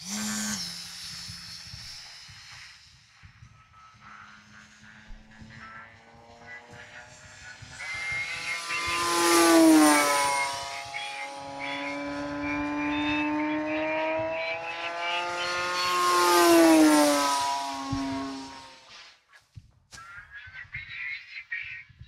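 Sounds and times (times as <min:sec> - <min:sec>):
electric glider whine passing: 0:07.6 - 0:18.9.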